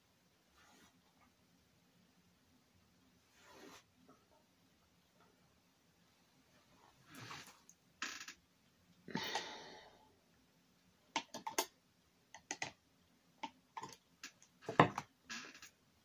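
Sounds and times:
paintbrush clicking and tapping: 0:11.2 - 0:11.7.

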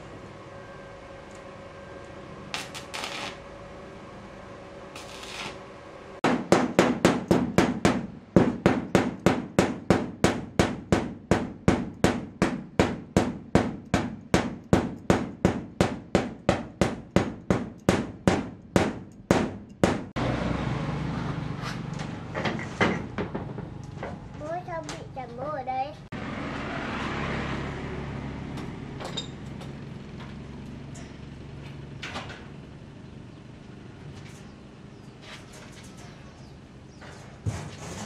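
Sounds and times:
hammer striking steel: 0:06.2 - 0:20.2.

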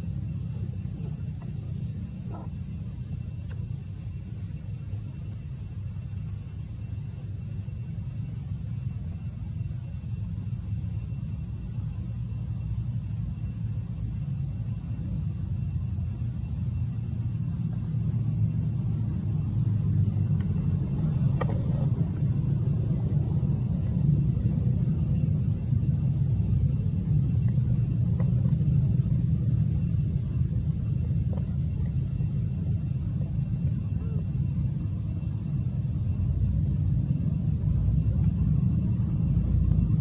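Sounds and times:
faint high whine: 0:00.0 - 0:40.0
low steady rumble: 0:00.0 - 0:40.0.

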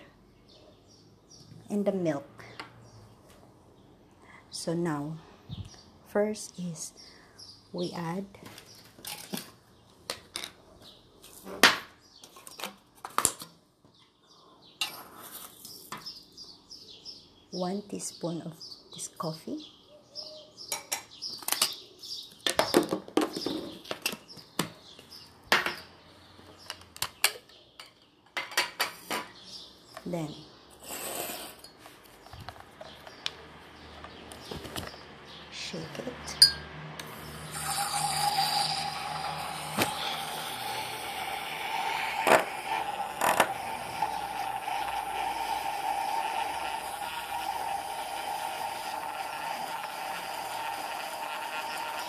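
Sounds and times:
birds chirping: 0:00.0 - 0:11.3, 0:13.8 - 0:47.3
milk frother motor whine: 0:37.0 - 0:52.0.

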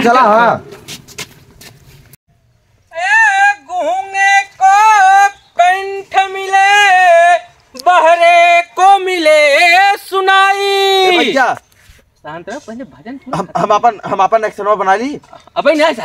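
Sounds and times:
high-pitched voice singing: 0:02.9 - 0:08.4.

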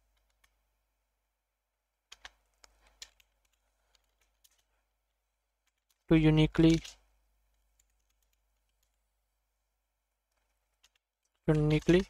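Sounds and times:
keyboard keystrokes: 0:02.1 - 0:04.6, 0:06.6 - 0:07.0, 0:07.8 - 0:09.0, 0:10.3 - 0:12.0.

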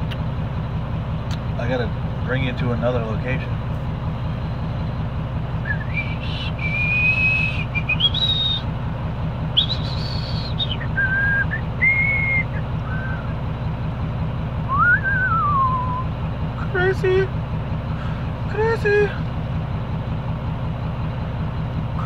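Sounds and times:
idling vehicle engine hum: 0:00.0 - 0:22.0
man whistling a tune: 0:05.6 - 0:08.7, 0:09.6 - 0:13.3, 0:14.7 - 0:16.1.

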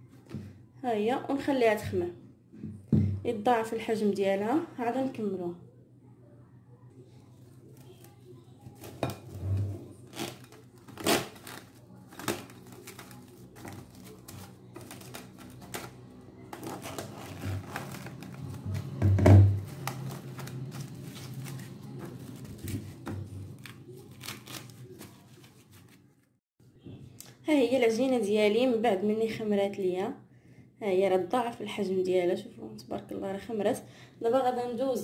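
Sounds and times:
cling film crinkling: 0:10.0 - 0:19.0, 0:19.6 - 0:26.2.

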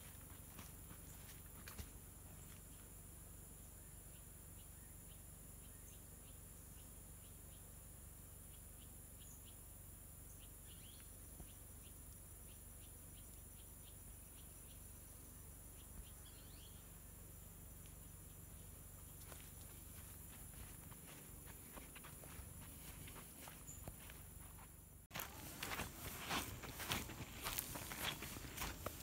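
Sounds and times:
footsteps on dirt path: 0:00.0 - 0:02.9, 0:18.4 - 0:29.0
faint insect chorus buzzing: 0:00.0 - 0:29.0
insect chirps and ticks: 0:00.0 - 0:29.0.

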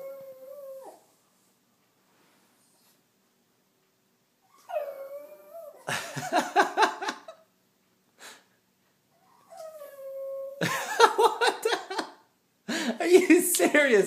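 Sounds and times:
dog whining and howling: 0:00.0 - 0:01.2, 0:04.4 - 0:05.9, 0:09.2 - 0:10.6.

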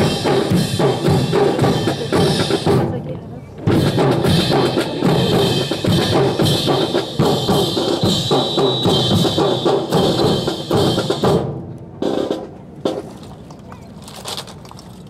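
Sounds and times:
snare and bass drums cadence: 0:03.7 - 0:14.6
rifles clacking: 0:12.4 - 0:15.0.

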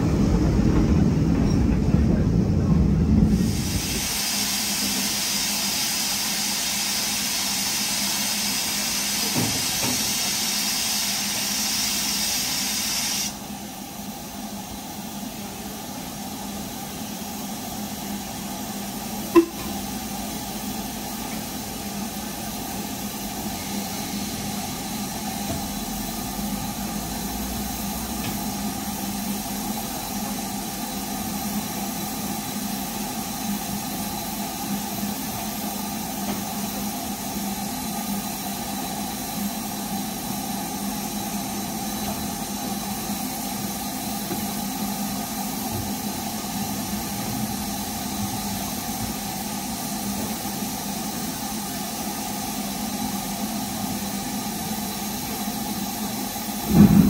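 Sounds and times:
steam locomotive hissing: 0:00.0 - 0:57.0
low rumble: 0:56.6 - 0:57.0.

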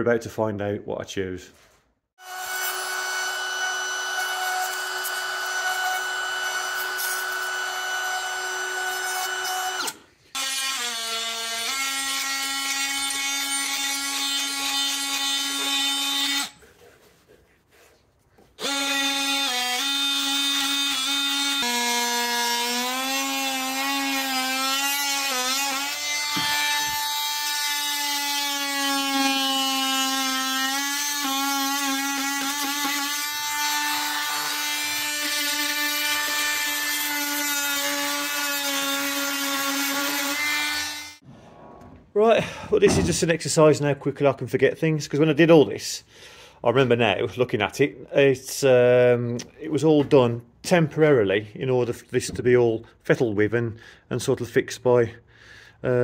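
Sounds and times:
router whining cutting wood: 0:02.2 - 0:11.9.

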